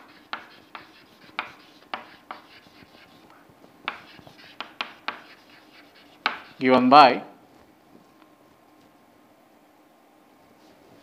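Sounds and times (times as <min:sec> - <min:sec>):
chalk tapping on blackboard: 0:00.0 - 0:06.6
chalk scratching: 0:00.0 - 0:06.7.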